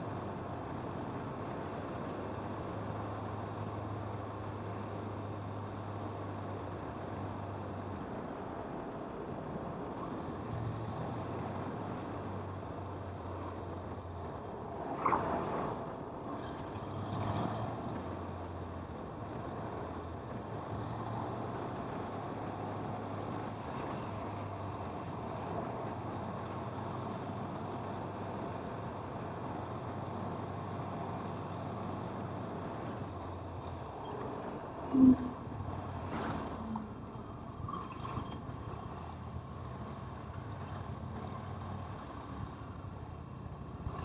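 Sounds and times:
wind and road noise: 0:00.0 - 0:44.0.

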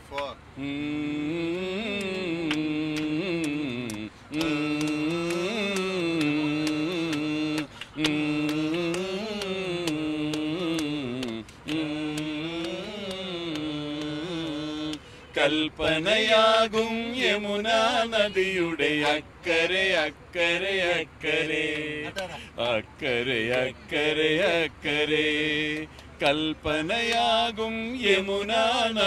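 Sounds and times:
men singing: 0:00.6 - 0:29.0
sharp tapping beat: 0:02.0 - 0:15.0.

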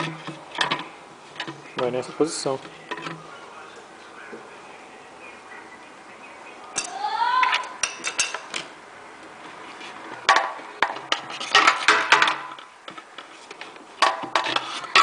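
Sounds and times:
plastic parts clicking and knocking: 0:00.0 - 0:01.9, 0:10.2 - 0:15.0.

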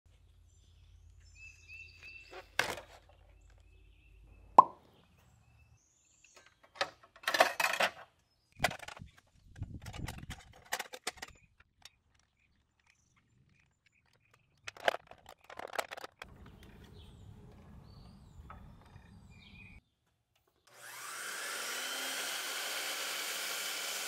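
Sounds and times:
clatter clicks and scraping: 0:06.4 - 0:17.8
faint bird chirps: 0:16.4 - 0:19.9.

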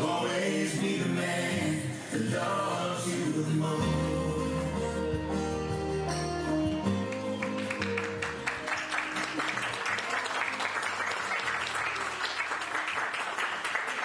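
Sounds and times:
guests applauding: 0:07.0 - 0:14.0.

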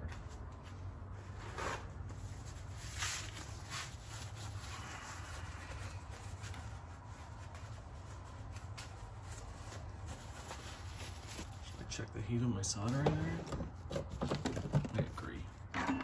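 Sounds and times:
soft rustles: 0:00.0 - 0:12.0.

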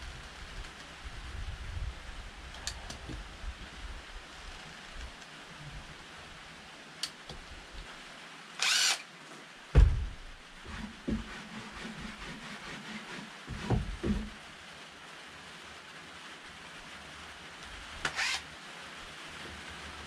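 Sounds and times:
power tool motor whirring: 0:08.6 - 0:09.0, 0:18.1 - 0:18.4
loud thump: 0:09.7 - 0:10.3.

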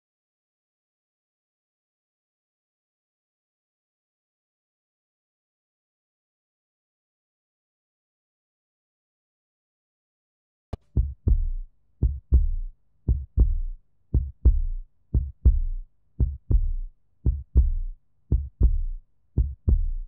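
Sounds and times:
heartbeat thumps: 0:10.8 - 0:20.0.

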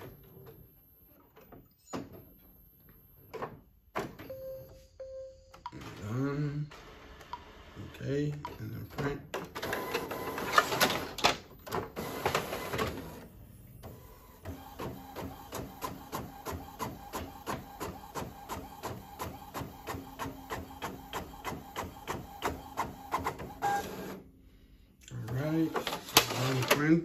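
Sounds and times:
printer rattling: 0:25.4 - 0:27.0.

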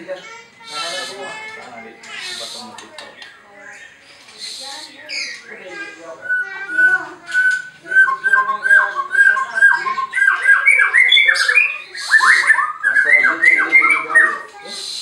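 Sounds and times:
bird singing whistled notes: 0:06.2 - 0:15.0.

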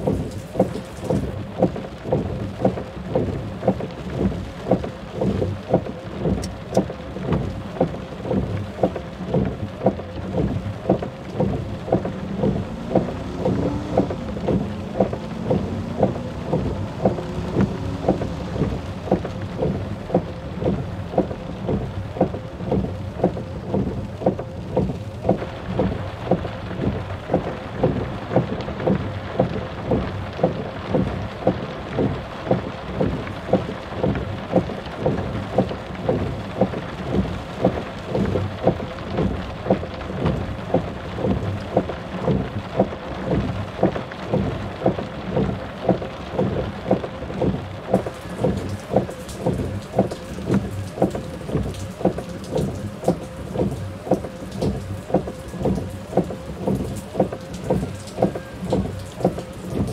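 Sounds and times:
rain-like rushing noise: 0:00.0 - 0:59.9
regular low thuds: 0:00.0 - 0:59.9.

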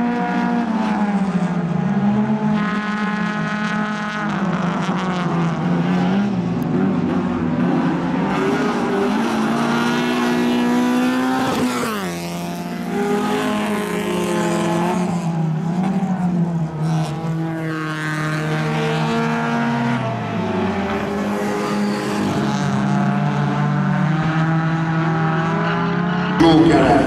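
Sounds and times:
race car engines running hard: 0:00.0 - 0:27.0.

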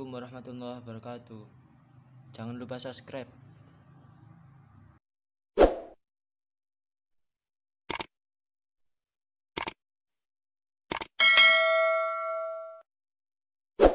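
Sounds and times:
bell chime: 0:11.2 - 0:12.8.

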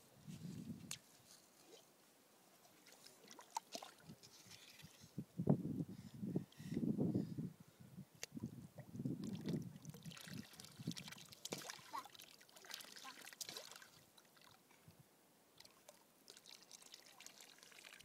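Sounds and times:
water splashing and trickling: 0:02.6 - 0:05.1, 0:08.3 - 0:14.9, 0:15.6 - 0:18.0.

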